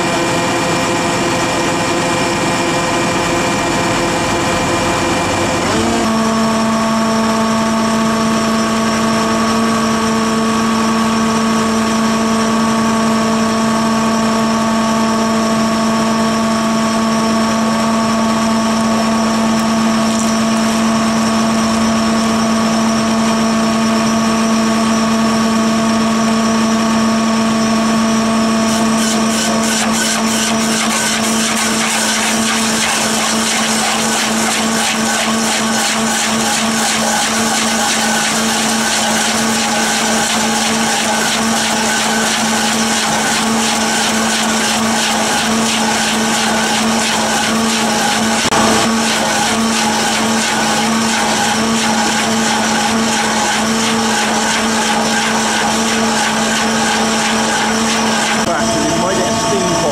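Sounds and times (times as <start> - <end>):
engine humming: 48.4 - 50.3.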